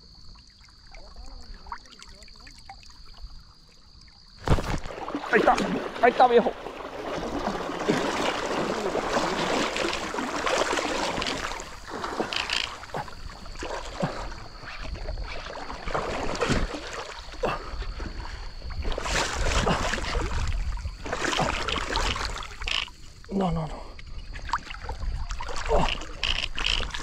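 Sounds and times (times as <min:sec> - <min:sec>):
fish splashing in water: 0:04.1 - 0:23.0, 0:24.4 - 0:27.0
river water rushing: 0:04.8 - 0:12.9.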